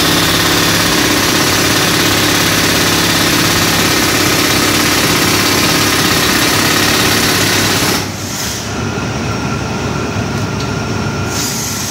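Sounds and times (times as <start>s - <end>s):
jackhammer hammering concrete: 0.0s - 8.2s
air compressor running: 0.0s - 11.9s.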